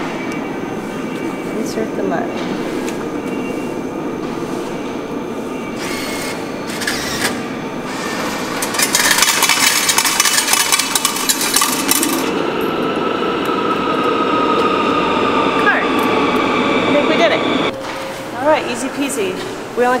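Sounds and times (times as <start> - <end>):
ticket machine mechanism clattering: 8.2 - 12.3.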